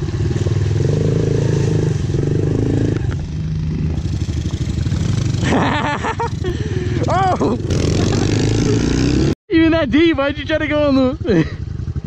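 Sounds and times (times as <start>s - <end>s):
dirt bike engine revving: 0.0s - 9.4s.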